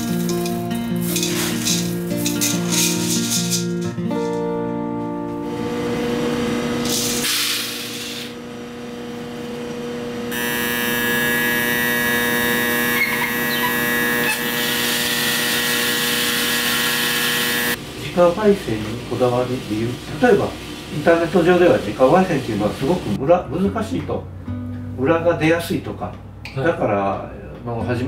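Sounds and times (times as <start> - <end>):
roaster motor humming: 5.4 - 23.2.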